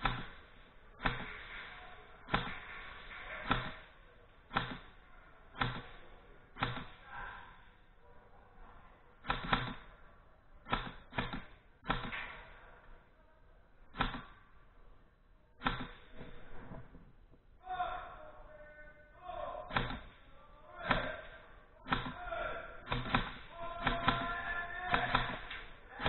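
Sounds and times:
airsoft gun shots: 0:00.0 - 0:05.0, 0:06.6 - 0:07.0, 0:09.2 - 0:09.9, 0:10.6 - 0:12.4, 0:13.9 - 0:14.4, 0:15.6 - 0:16.4, 0:19.7 - 0:20.2, 0:20.8 - 0:25.8.

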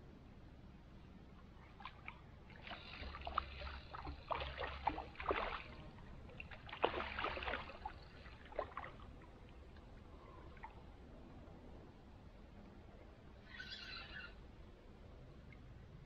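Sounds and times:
shallow water splashing: 0:01.6 - 0:10.9.

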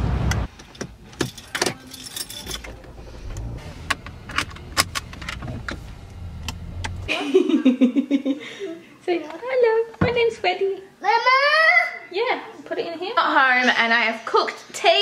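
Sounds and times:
low steady hum: 0:00.3 - 0:09.0
keys rattling: 0:00.6 - 0:05.8
seatbelt buckling: 0:00.6 - 0:07.1
toddler's voice: 0:11.0 - 0:12.1.

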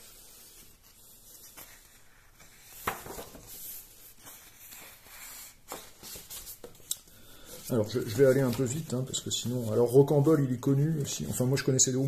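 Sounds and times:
paper rustling: 0:00.0 - 0:10.4.

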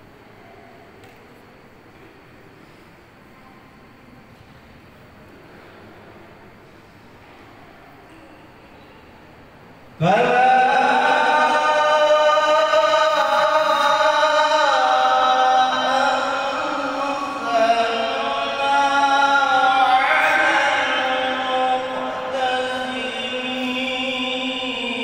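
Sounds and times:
man chanting melodically: 0:10.0 - 0:25.0.

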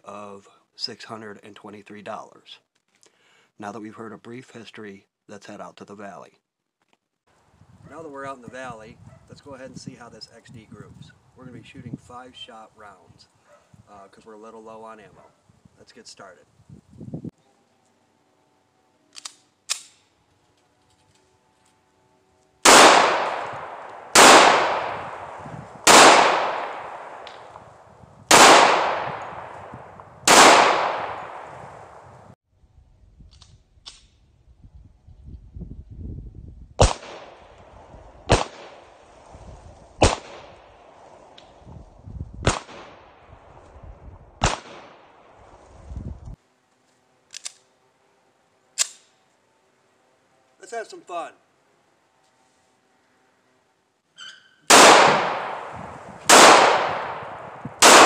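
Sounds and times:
pistol shots echoing: 0:22.6 - 0:27.6, 0:28.3 - 0:31.6, 0:38.3 - 0:38.8, 0:40.0 - 0:40.6, 0:54.7 - 0:58.0.

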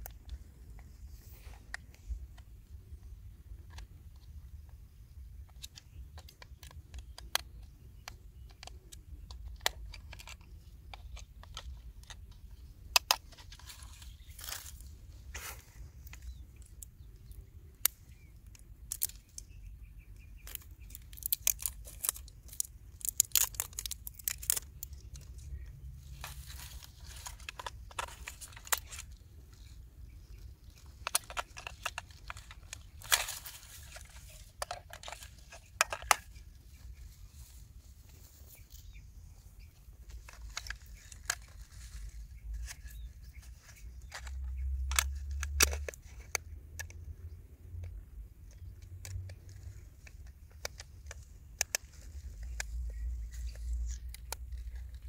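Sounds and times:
plastic clicks and taps: 0:05.4 - 0:13.8, 0:42.6 - 0:47.1, 0:47.8 - 0:54.8
grass rustling: 0:11.0 - 0:18.3, 0:20.2 - 0:46.3.

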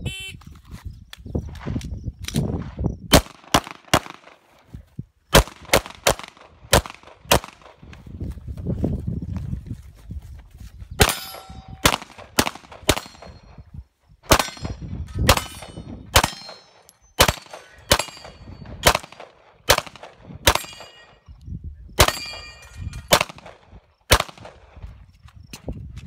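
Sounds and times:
pistol shots: 0:03.1 - 0:04.4, 0:05.3 - 0:07.8, 0:11.0 - 0:13.4, 0:14.3 - 0:21.2, 0:22.0 - 0:24.6
bullets ringing on steel plates: 0:11.0 - 0:12.0, 0:12.9 - 0:13.5, 0:14.3 - 0:18.8, 0:20.5 - 0:21.3, 0:22.0 - 0:23.2.

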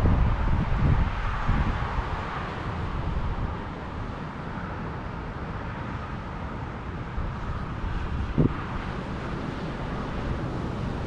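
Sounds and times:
wind buffeting microphone: 0:00.0 - 0:04.3, 0:06.8 - 0:11.0
road traffic hiss: 0:00.0 - 0:11.0.

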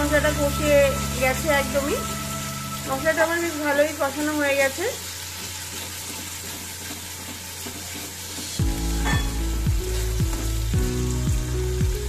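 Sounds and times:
masala sizzling in oil: 0:00.0 - 0:12.0
spatula stirring in pan: 0:05.0 - 0:08.6
background music with steady beat: 0:08.6 - 0:12.0.

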